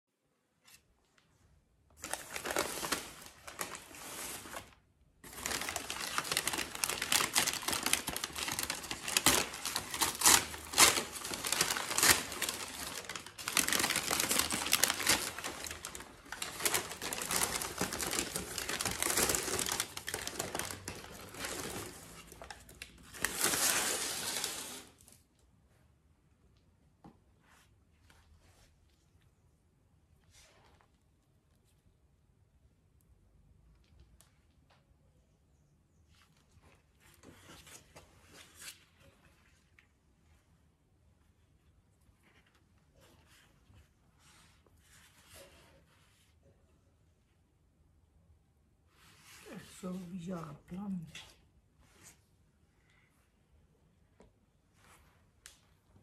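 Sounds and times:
wrapping paper rustling and crinkling: 1.9 - 25.3, 41.3 - 46.4.

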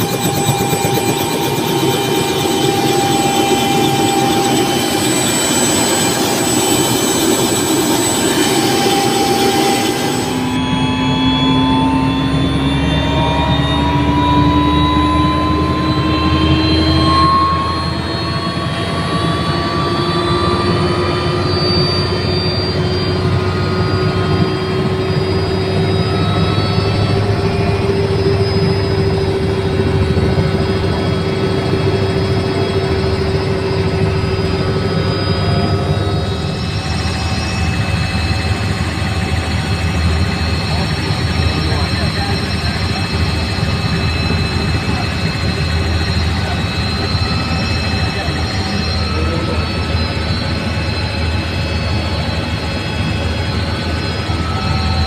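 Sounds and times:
helicopter engine and rotor: 0.0 - 55.0
high engine whine: 0.0 - 55.0.

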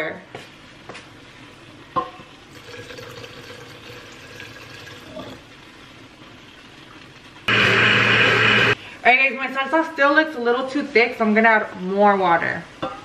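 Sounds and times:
water trickling into blender jar: 2.5 - 5.4.

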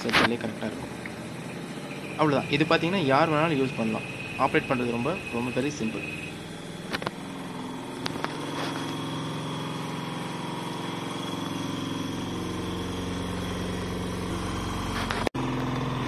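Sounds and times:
spin-dryer motor running: 0.0 - 16.0.

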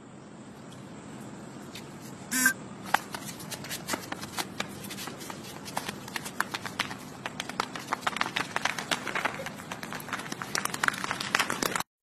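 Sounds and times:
steady background hiss: 0.0 - 11.8
brief pitched tone: 2.3 - 2.6.

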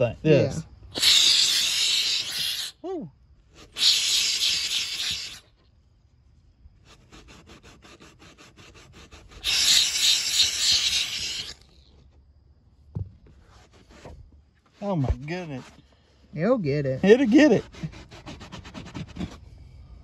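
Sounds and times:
steam cleaner hissing: 1.0 - 2.7, 3.7 - 5.5, 9.4 - 11.6.

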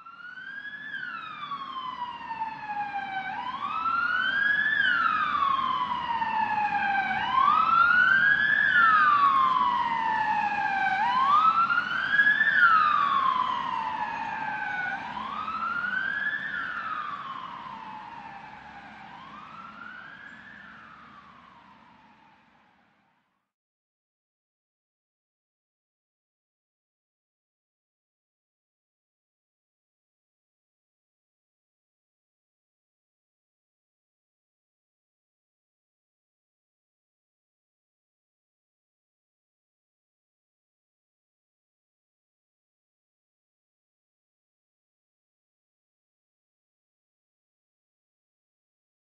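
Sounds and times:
emergency siren wailing: 0.0 - 23.2.

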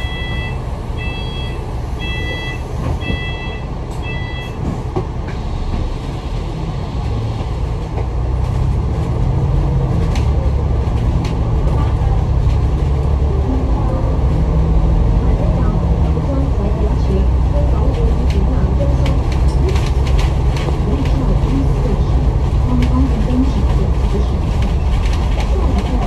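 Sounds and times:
electronic door warning beeps: 0.0 - 4.6
bus engine: 0.0 - 26.0.

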